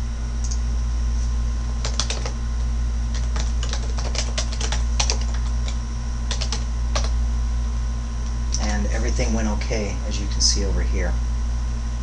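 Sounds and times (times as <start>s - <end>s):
steady low hum: 0.0s - 12.0s
typing on computer keyboard: 1.8s - 2.4s, 3.1s - 7.2s.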